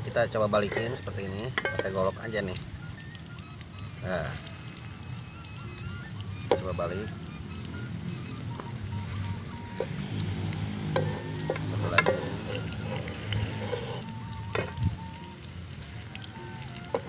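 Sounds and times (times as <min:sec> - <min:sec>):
fritters sizzling in oil: 0:00.0 - 0:17.0
blade scraping a wok: 0:10.8 - 0:14.8.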